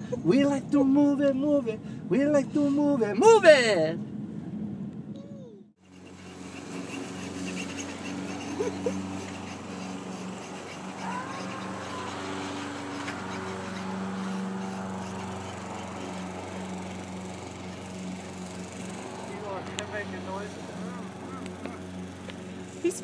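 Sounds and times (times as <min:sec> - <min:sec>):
small motor humming: 0:05.8 - 0:23.0.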